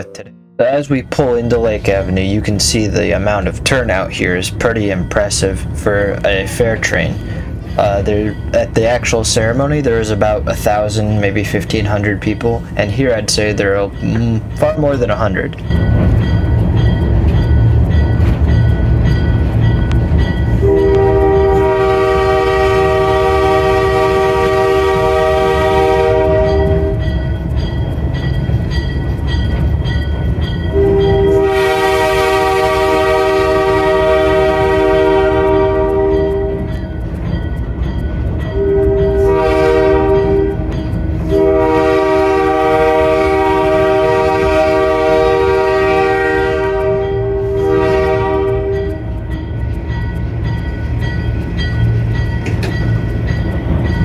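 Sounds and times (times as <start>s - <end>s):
diesel engine rumbling: 0.0s - 54.0s
locomotive air horn: 20.6s - 27.0s, 30.7s - 36.7s, 38.6s - 40.7s, 41.3s - 49.1s.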